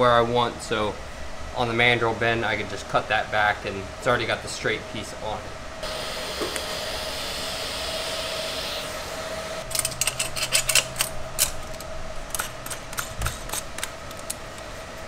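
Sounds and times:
metallic clicks and clinks: 9.7s - 14.4s.

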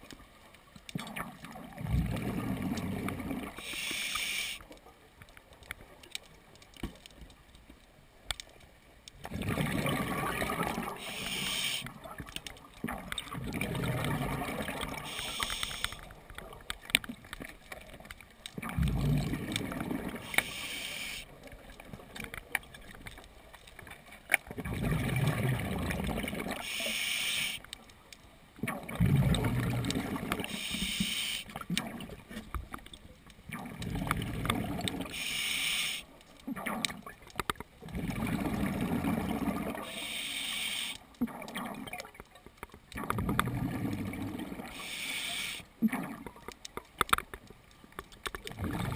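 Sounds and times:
gurgling exhaled bubbles: 1.0s - 3.7s, 9.2s - 12.2s, 12.8s - 16.1s, 18.6s - 21.1s, 24.5s - 26.8s, 28.6s - 31.0s, 33.5s - 35.3s, 37.8s - 40.1s, 42.9s - 45.0s, 48.5s - 48.9s
diver inhaling through regulator: 3.6s - 4.6s, 11.0s - 11.9s, 15.0s - 16.0s, 20.2s - 21.3s, 26.6s - 27.6s, 30.5s - 31.5s, 35.1s - 36.1s, 39.8s - 41.0s, 44.7s - 45.6s.

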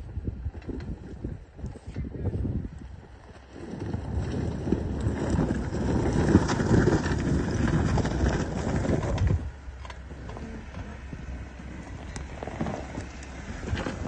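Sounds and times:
tyres crunching over snow and rocks: 3.0s - 14.0s.

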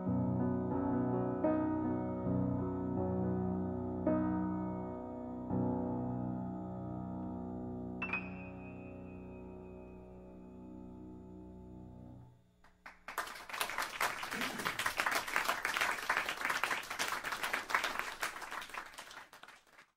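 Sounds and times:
soft piano chord: 0.0s - 12.4s
audience applauding: 12.7s - 19.9s.

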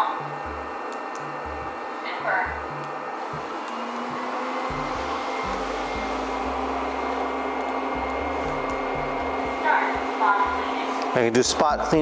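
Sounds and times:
robot vacuum suction noise: 3.2s - 11.4s
low hum: 4.6s - 11.1s.

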